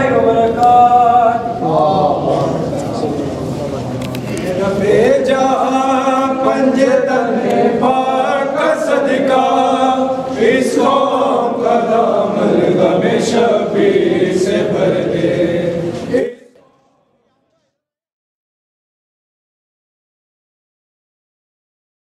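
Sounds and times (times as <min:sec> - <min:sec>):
men chanting in unison: 0:00.0 - 0:03.5, 0:04.3 - 0:17.6.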